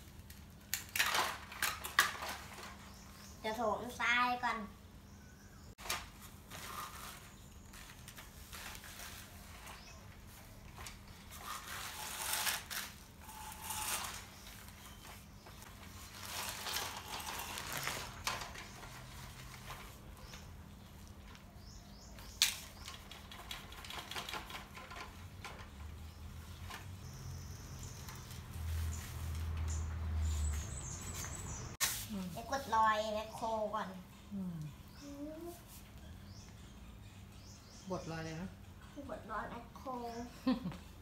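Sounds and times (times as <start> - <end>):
plastic handling noises: 0.0 - 3.0, 5.8 - 21.5.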